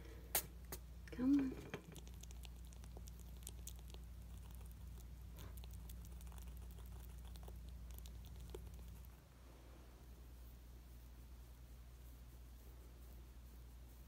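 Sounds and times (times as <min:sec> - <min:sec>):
low steady hum: 0:00.0 - 0:14.0
squirrel gnawing clicks: 0:01.8 - 0:09.2.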